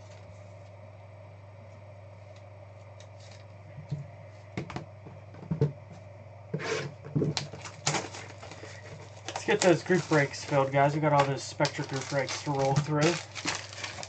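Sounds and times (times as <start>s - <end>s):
low steady hum: 0.0s - 14.0s
scraping rustle: 6.6s - 14.0s.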